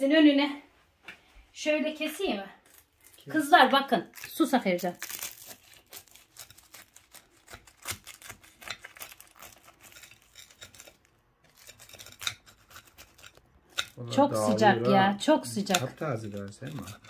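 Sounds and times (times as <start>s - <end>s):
knife cutting crunchy pastry: 5.0s - 14.9s, 15.5s - 17.0s.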